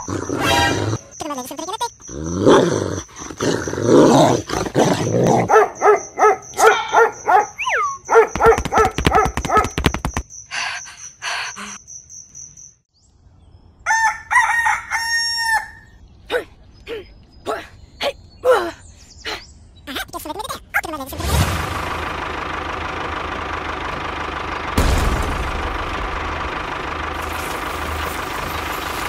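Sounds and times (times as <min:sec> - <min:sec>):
night insects chirping: 0:00.0 - 0:12.9
short yelping calls: 0:05.8 - 0:09.8
rooster crowing: 0:13.8 - 0:16.0.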